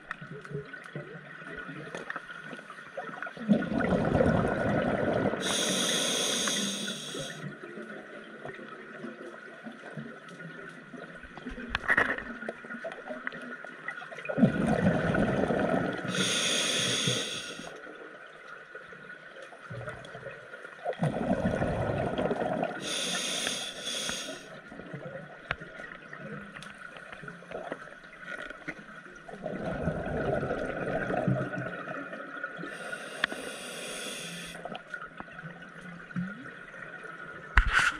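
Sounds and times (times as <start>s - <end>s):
exhaust bubbles bubbling: 3.5s - 5.4s, 14.4s - 16.1s, 21.0s - 22.8s, 29.4s - 31.9s
regulator hissing inhalation: 5.4s - 7.4s, 16.1s - 17.7s, 22.8s - 24.5s, 32.7s - 34.6s.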